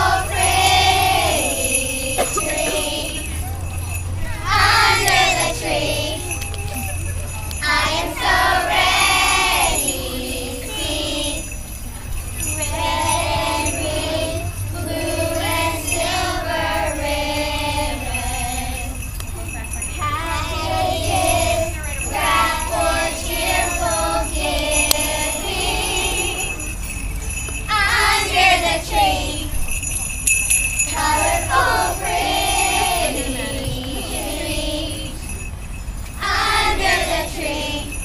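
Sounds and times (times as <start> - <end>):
children singing: 0.0 - 3.4, 4.2 - 6.3, 7.6 - 11.5, 12.7 - 18.9, 20.1 - 26.6, 27.7 - 29.5, 30.9 - 35.1, 36.2 - 38.0
jingle bells shaken: 0.0 - 38.0.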